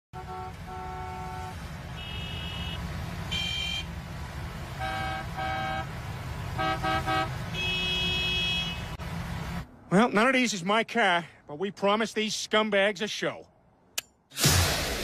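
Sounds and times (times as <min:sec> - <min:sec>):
car horns honking: 0:00.1 - 0:04.0, 0:04.6 - 0:09.0.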